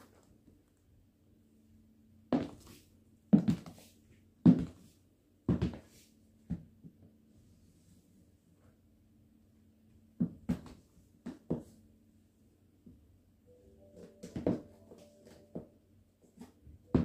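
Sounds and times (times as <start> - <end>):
high heels clicking on hard floor: 14.0 - 15.7.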